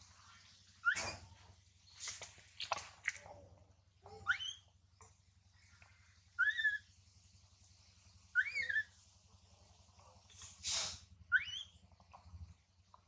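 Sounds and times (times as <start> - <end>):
infant monkey whimpering: 6.4 - 6.8
breathy hiss: 10.4 - 11.2.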